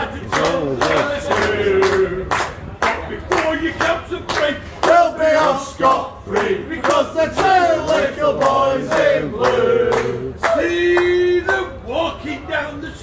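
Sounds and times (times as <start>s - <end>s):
men singing together: 0.0s - 2.3s, 3.1s - 11.5s
hands clapping in time: 0.2s - 11.8s.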